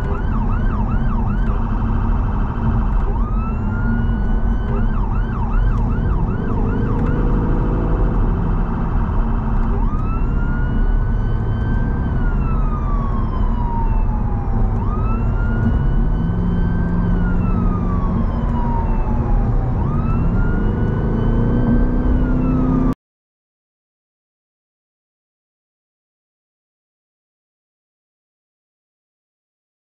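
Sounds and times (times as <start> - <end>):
road and engine noise: 0.0 - 23.0
two-tone electronic siren: 0.0 - 23.0.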